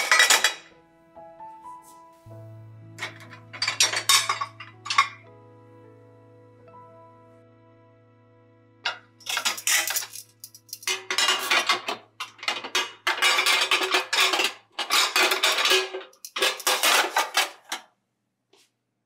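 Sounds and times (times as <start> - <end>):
dishes clattering in dishwasher rack: 0.0 - 0.7, 3.0 - 5.2, 8.9 - 17.8.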